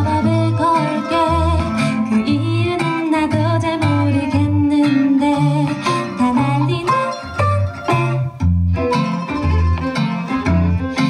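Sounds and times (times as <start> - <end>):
woman singing: 0.0 - 8.3
guitar and bass accompaniment: 0.0 - 11.0.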